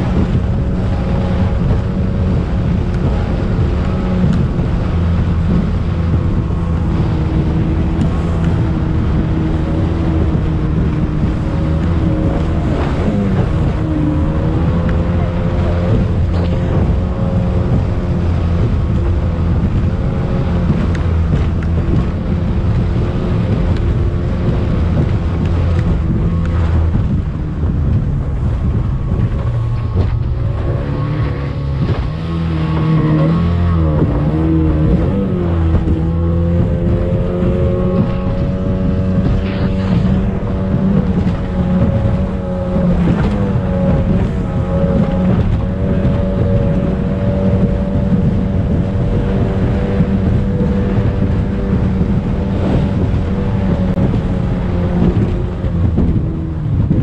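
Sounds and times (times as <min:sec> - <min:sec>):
rushing water: 0:00.0 - 0:57.0
speedboat engine running: 0:00.0 - 0:57.0
wind on microphone: 0:00.0 - 0:57.0.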